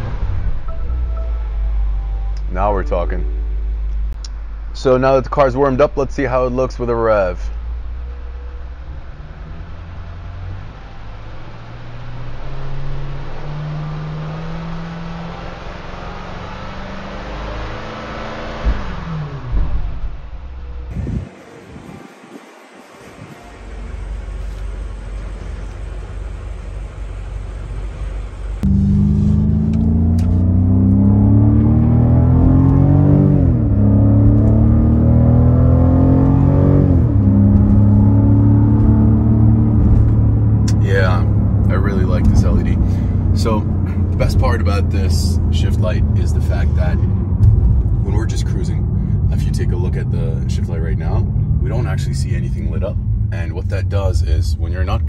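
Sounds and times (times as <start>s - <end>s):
car engine revving: 1.5s - 55.0s.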